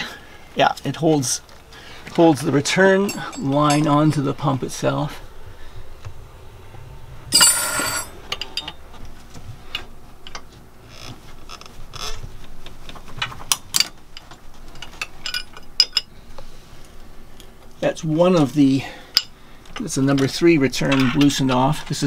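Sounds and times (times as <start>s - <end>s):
loud metallic rattle: 2.9s - 10.4s.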